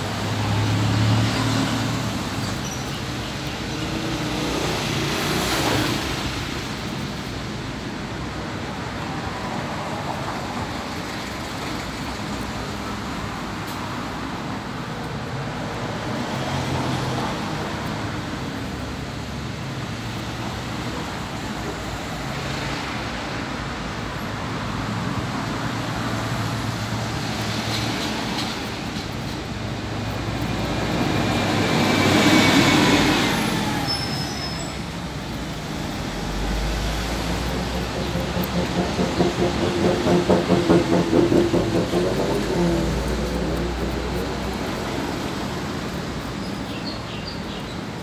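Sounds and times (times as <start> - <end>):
road traffic noise: 0.0 - 48.0
vehicle passing: 23.9 - 46.4.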